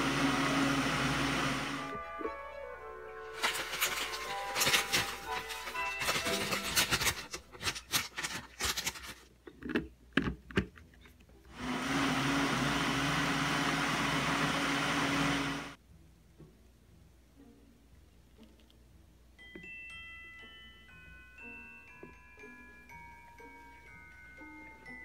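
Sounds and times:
blender running: 0.0 - 2.0, 11.5 - 15.8
plastic packet rustling: 3.2 - 9.3.

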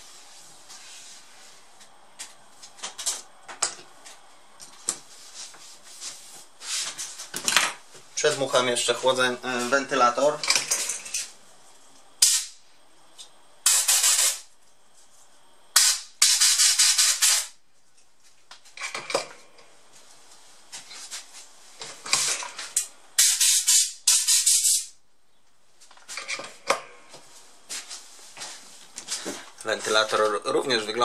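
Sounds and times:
compressed air hissing blasts: 12.2 - 12.6, 13.6 - 14.5, 15.7 - 17.6, 22.1 - 25.0.

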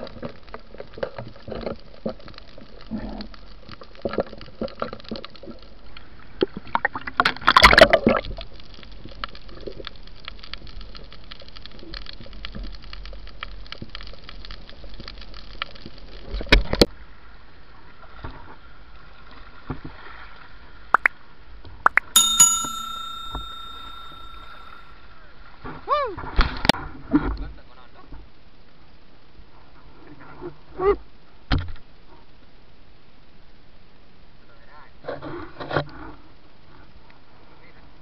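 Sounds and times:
underwater bubbling and sloshing: 0.0 - 21.6
bell-like chime: 22.2 - 24.8.

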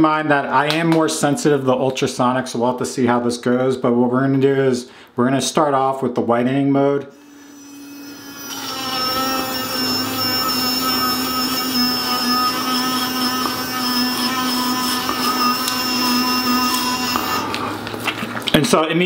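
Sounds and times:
electric toothbrush buzzing: 7.2 - 17.9.

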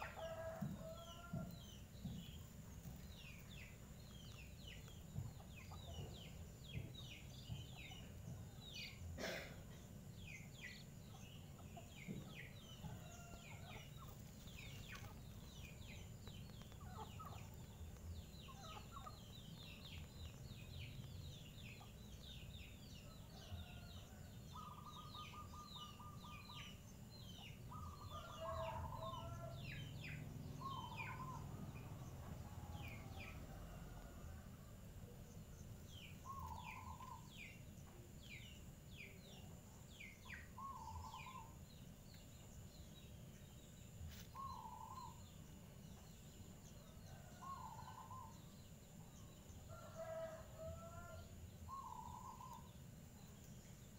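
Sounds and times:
birds chirping: 35.3 - 46.3.

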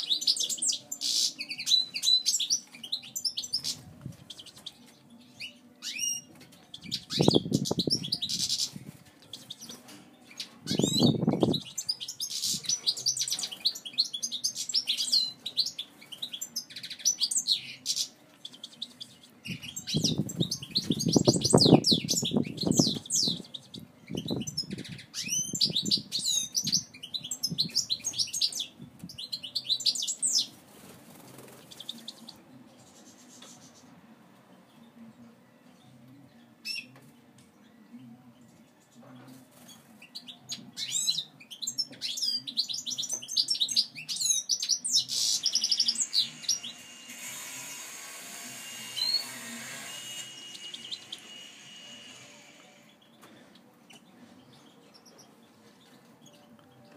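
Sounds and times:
goldfinch twittering song: 0.0 - 30.6, 39.6 - 47.0.

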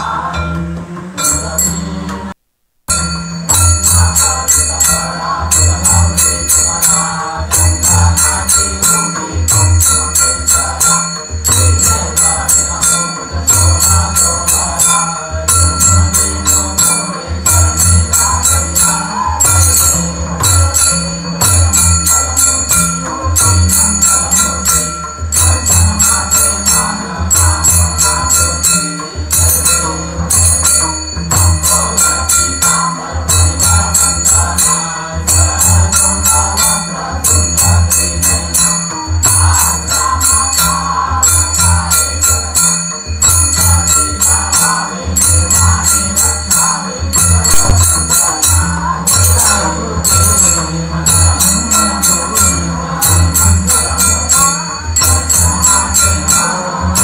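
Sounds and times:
bells and cymbals jingling: 0.0 - 57.0
deep drum pattern: 47.1 - 48.2.

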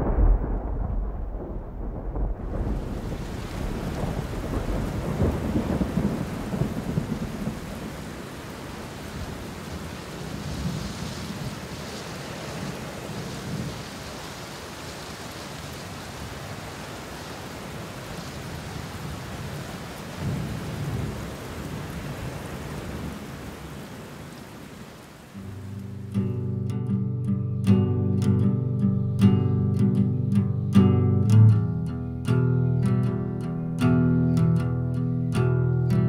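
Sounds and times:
rolling thunder: 0.0 - 8.5
steady rain: 0.0 - 36.0.

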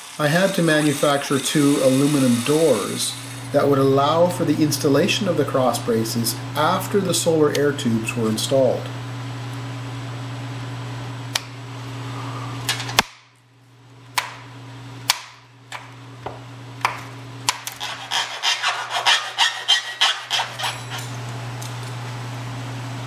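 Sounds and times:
steady low hum: 0.0 - 23.0
file rasping on metal: 17.8 - 21.1.

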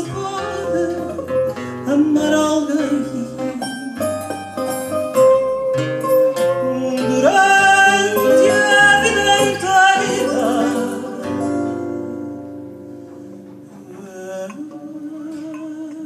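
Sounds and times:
woman singing: 0.0 - 4.1, 6.5 - 12.0, 13.9 - 16.0
two guitars playing: 0.0 - 16.0.

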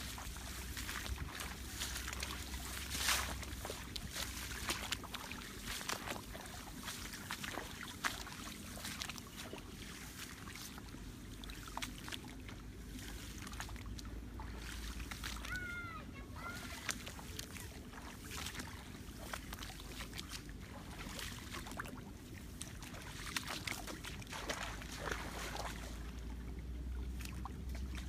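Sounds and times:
wind rumble on microphone: 0.0 - 11.0
footsteps swishing through grass: 0.0 - 15.8
sloshing in shallow water: 0.0 - 28.0.

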